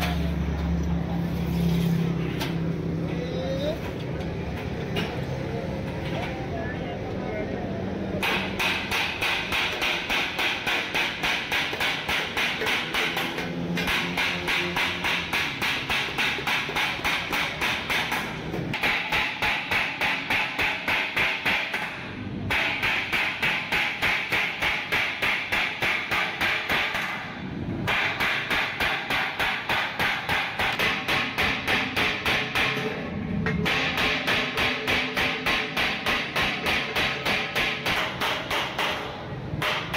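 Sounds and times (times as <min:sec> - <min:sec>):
hammer striking sheet steel: 0:08.2 - 0:39.9.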